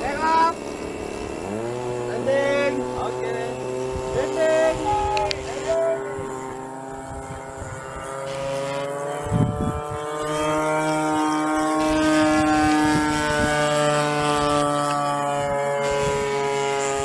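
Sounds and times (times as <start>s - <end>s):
model plane fans whining: 0.0s - 17.0s
wind rumble on microphone: 3.6s - 17.0s.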